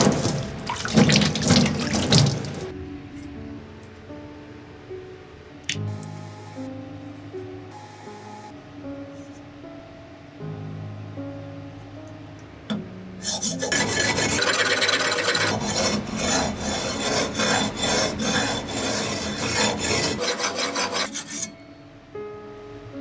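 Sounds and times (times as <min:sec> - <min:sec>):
blade rasping on sharpening plate: 0:13.2 - 0:21.6.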